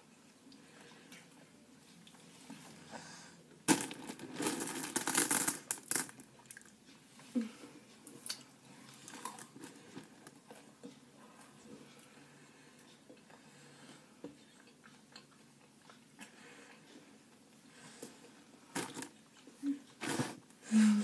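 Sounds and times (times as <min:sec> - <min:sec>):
people chewing: 0:06.3 - 0:20.4.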